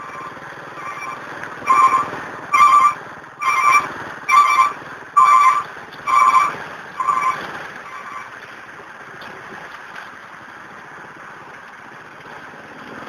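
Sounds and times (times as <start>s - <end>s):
electronic beeper beeping: 0.0s - 8.2s
engine and traffic rumble: 0.0s - 13.0s.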